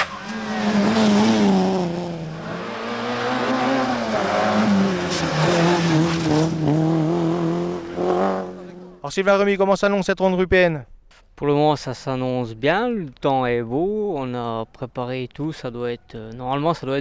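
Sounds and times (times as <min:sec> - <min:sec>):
car engine revving hard: 0:00.0 - 0:09.0.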